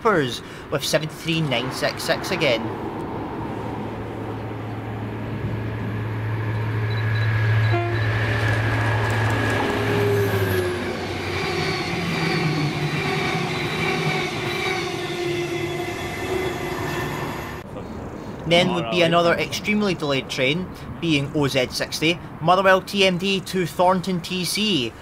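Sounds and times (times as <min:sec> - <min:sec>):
diesel locomotive drone: 0:00.0 - 0:19.7.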